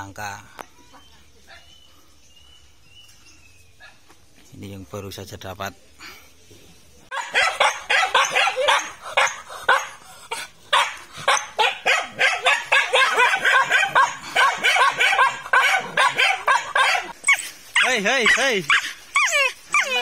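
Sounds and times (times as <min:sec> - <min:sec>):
dog barking rapidly: 0:07.1 - 0:10.0, 0:10.7 - 0:20.0.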